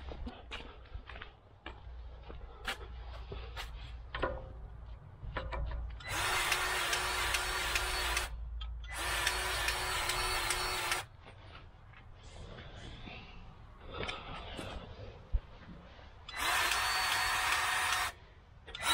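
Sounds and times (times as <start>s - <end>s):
grease gun motor whirring: 6.0s - 8.3s, 8.9s - 11.1s, 16.3s - 18.9s.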